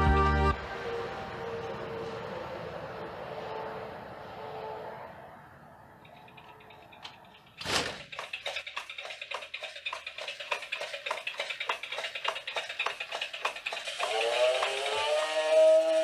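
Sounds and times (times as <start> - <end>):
eerie music with rising tones: 0.0 - 5.9, 13.9 - 16.0.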